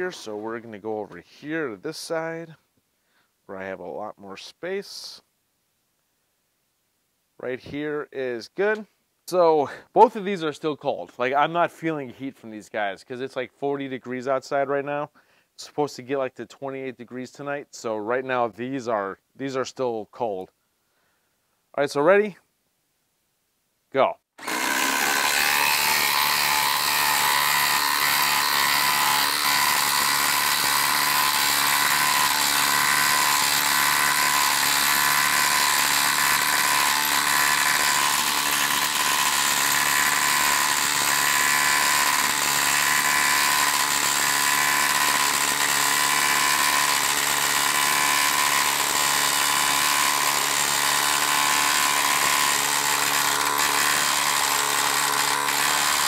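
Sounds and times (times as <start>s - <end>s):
impact driver hammering: 24.4s - 56.0s.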